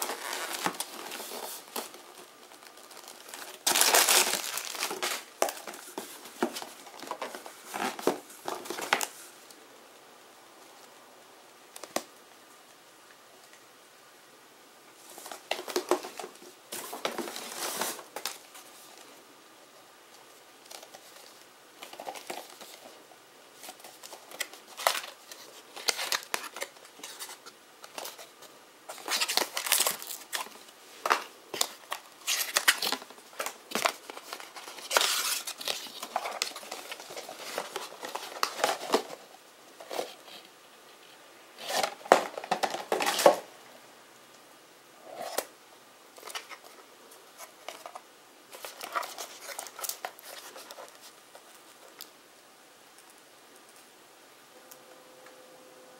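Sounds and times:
packaging rustling and crinkling: 0:00.0 - 0:09.3, 0:15.0 - 0:19.1, 0:20.6 - 0:23.0, 0:23.6 - 0:40.5, 0:41.6 - 0:43.5, 0:47.4 - 0:52.1.

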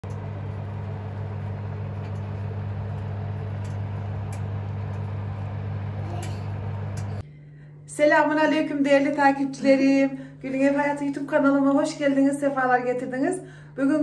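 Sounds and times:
electric oven humming: 0:00.0 - 0:07.2.

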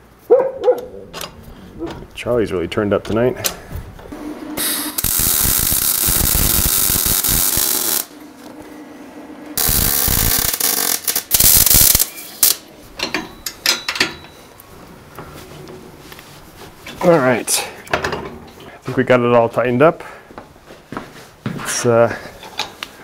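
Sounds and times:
welder arc crackling hiss: 0:04.6 - 0:08.1, 0:09.6 - 0:12.6.

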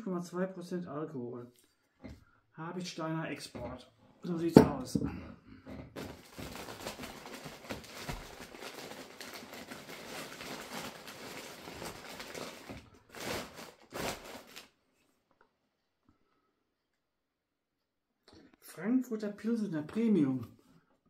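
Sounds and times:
packing material rustling: 0:06.0 - 0:14.8.

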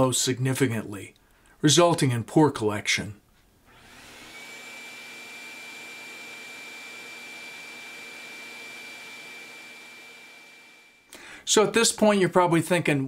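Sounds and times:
shop vacuum running: 0:03.7 - 0:11.1.

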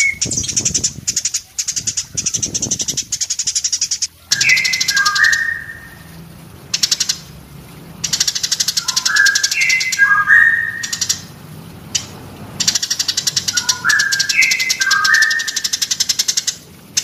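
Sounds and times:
sparrow chattering trills: 0:00.0 - 0:05.8, 0:08.0 - 0:11.3, 0:12.0 - 0:17.0
sparrow whistled notes: 0:03.6 - 0:06.1, 0:08.4 - 0:11.2, 0:13.0 - 0:16.0.

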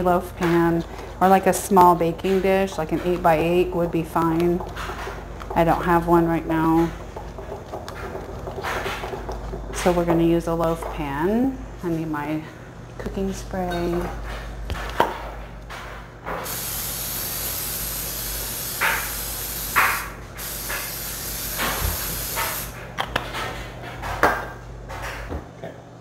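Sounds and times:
aerosol spray hissing: 0:16.4 - 0:22.8.

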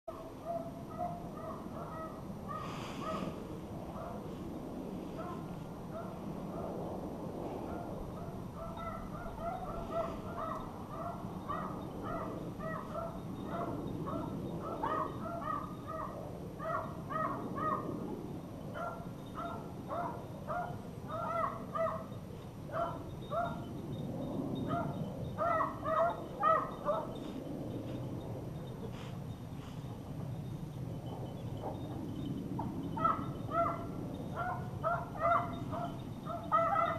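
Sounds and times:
hunting dogs baying: 0:07.7 - 0:18.0, 0:18.8 - 0:23.7, 0:24.5 - 0:27.3, 0:31.0 - 0:36.9.

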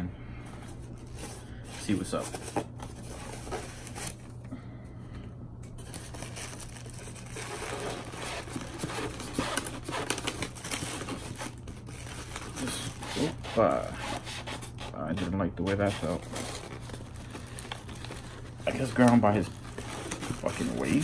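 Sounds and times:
plastic bag crinkling: 0:05.8 - 0:13.7, 0:16.0 - 0:21.0.

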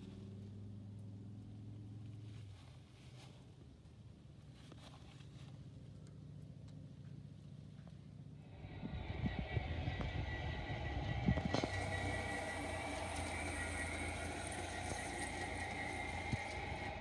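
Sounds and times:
model train motor hum: 0:08.4 - 0:17.0
train wheels clicking on track: 0:08.6 - 0:17.0.

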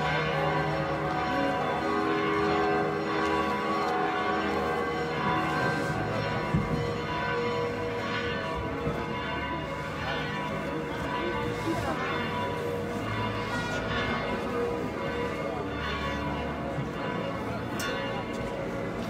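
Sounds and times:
church bells ringing: 0:00.0 - 0:19.0
chatter of voices: 0:08.4 - 0:19.0.

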